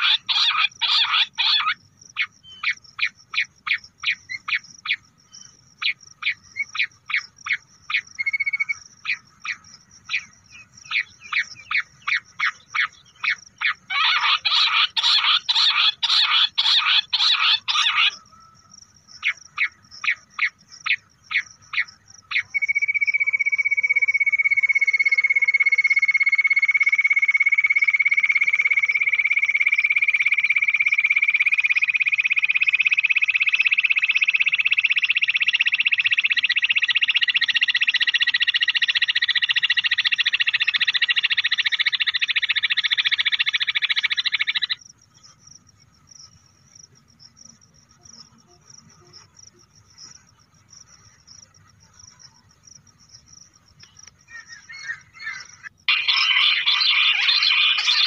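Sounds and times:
quail chirps and rising trill: 0:00.0 - 0:18.5, 0:19.2 - 0:44.8, 0:54.2 - 0:58.0.

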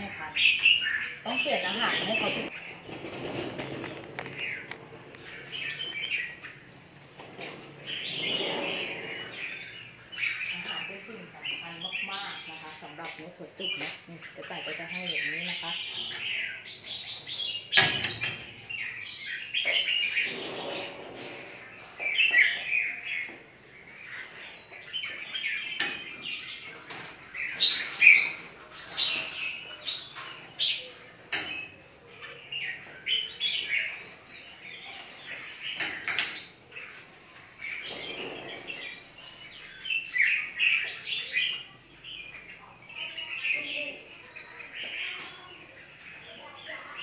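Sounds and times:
birds chirping and calling: 0:00.0 - 0:47.0.

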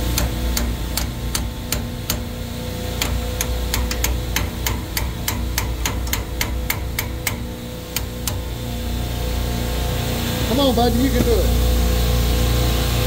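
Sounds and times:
steady machinery hum: 0:00.0 - 0:13.0
ratchet wrench clicking: 0:03.0 - 0:08.4.

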